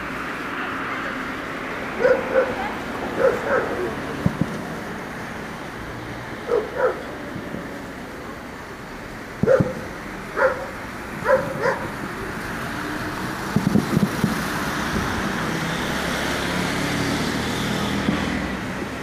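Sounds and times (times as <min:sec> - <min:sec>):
passing road traffic: 0:00.0 - 0:19.0
dog barking: 0:02.0 - 0:03.9, 0:06.5 - 0:07.1, 0:09.4 - 0:09.8, 0:10.4 - 0:12.0.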